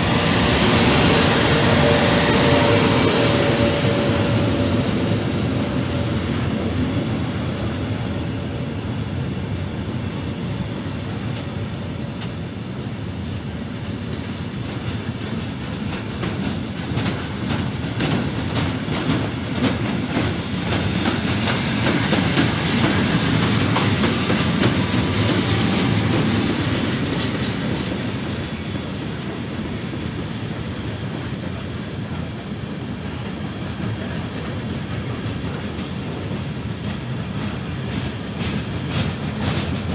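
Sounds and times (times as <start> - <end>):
train wheels rumbling on track: 0.0 - 39.9
wheels clacking over rail joints: 14.6 - 28.6.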